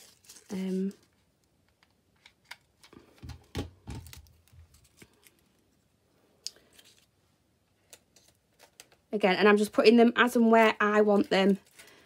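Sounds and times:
paper rustling: 0.0 - 1.2.

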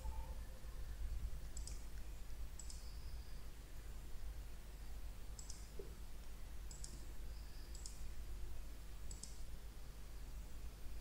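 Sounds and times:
low steady hum: 0.0 - 11.0
computer mouse clicking: 1.5 - 2.0, 2.6 - 2.9, 5.4 - 5.7, 6.7 - 7.0, 7.7 - 8.0, 9.1 - 9.4.

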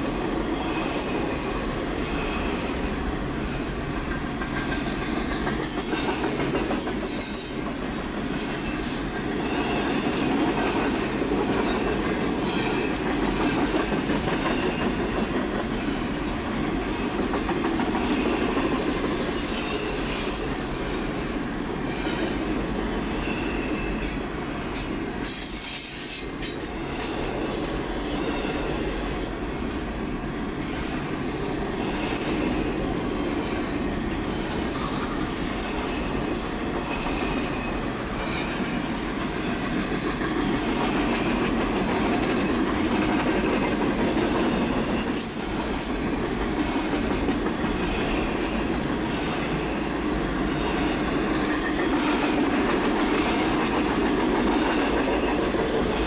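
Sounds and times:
freight train rumbling: 0.0 - 56.0
train wheel clicks: 4.0 - 8.1, 38.6 - 48.3.

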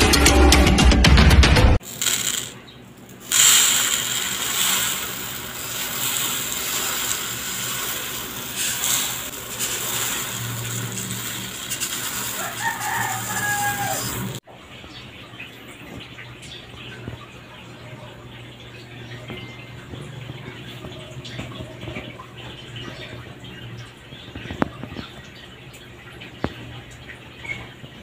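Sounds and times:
intro music: 0.0 - 2.5
rice pouring onto wooden board: 1.8 - 2.6, 3.2 - 14.4.

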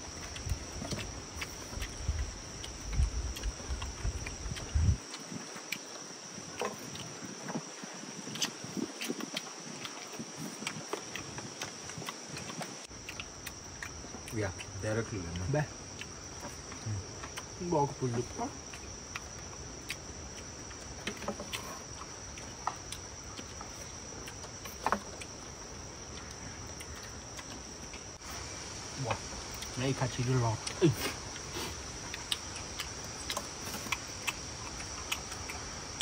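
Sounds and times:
high-pitched insect chorus: 0.0 - 36.0
quiet voice: 29.8 - 31.2.

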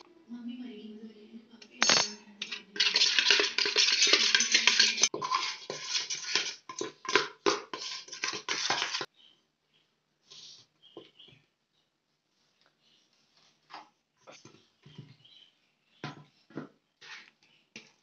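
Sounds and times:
kitchen utensils scraping and clattering: 1.8 - 9.1.

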